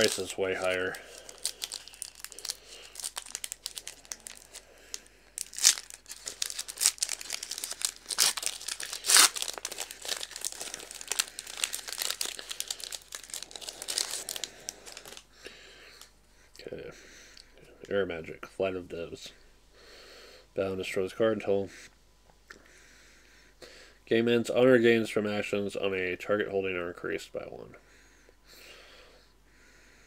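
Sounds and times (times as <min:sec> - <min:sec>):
foil wrapper tearing and crinkling: 0:00.0 - 0:15.3.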